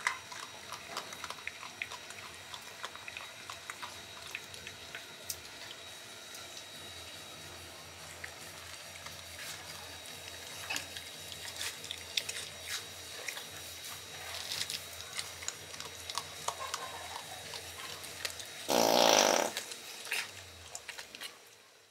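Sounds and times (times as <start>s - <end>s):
animal crunching dry kibble: 0.0s - 21.5s
loud pitched animal call: 18.7s - 19.6s.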